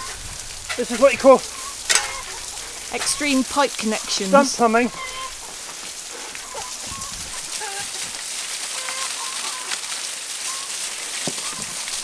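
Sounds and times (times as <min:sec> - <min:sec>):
hens clucking: 0:00.0 - 0:08.2
water gushing from a pipe: 0:00.0 - 0:12.0.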